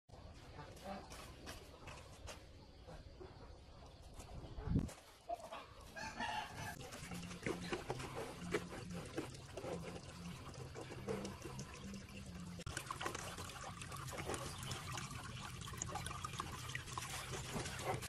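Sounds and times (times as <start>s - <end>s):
liquid trickling and dribbling: 5.5s - 18.0s.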